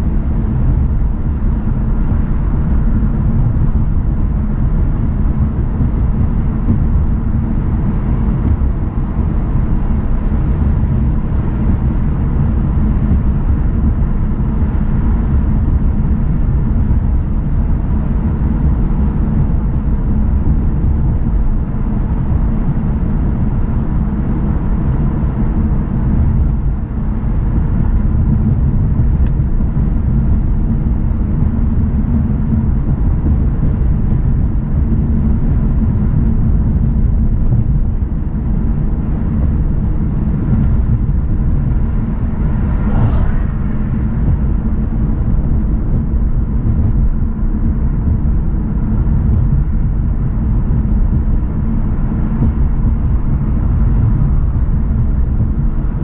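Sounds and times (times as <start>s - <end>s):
car road and engine rumble: 0.0s - 56.0s
high-pitched whine: 38.6s - 48.4s.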